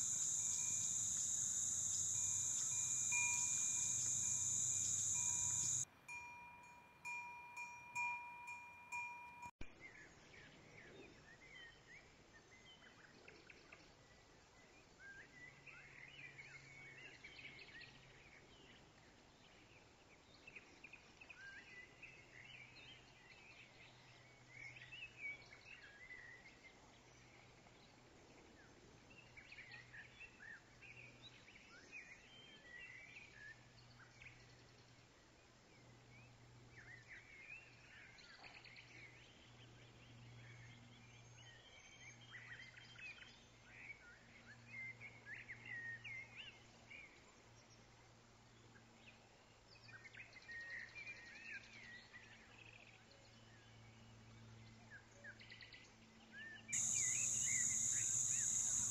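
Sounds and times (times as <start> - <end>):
low hum: 0.0 - 5.8
small birds chirping: 0.0 - 5.8, 56.8 - 58.9.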